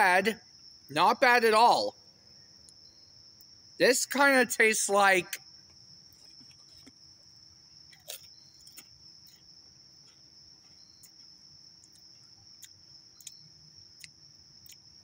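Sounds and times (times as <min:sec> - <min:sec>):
high-pitched insect chorus: 0:00.0 - 0:15.0
crisp crunching being chewed: 0:06.1 - 0:07.0, 0:07.9 - 0:09.5.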